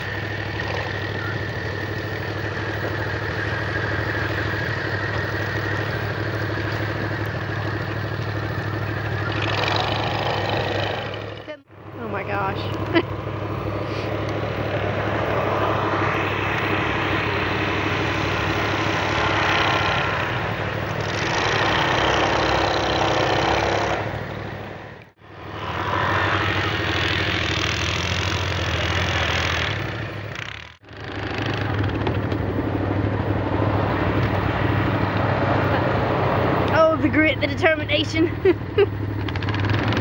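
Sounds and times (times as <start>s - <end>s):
vehicle engine under load: 0.0s - 40.0s.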